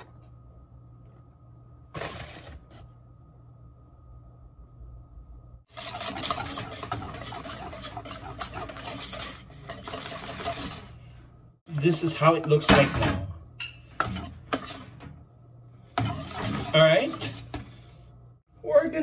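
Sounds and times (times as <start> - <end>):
whisk scraping a metal bowl: 5.7 - 11.1, 14.0 - 15.1, 15.9 - 17.8.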